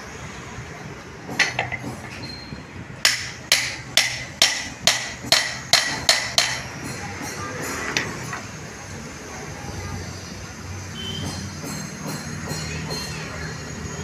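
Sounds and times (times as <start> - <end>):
hammer striking steel on anvil: 3.0 - 7.4.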